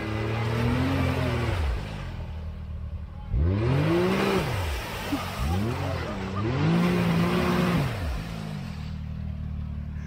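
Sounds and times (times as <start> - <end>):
utility vehicle engine revving: 0.0 - 10.0.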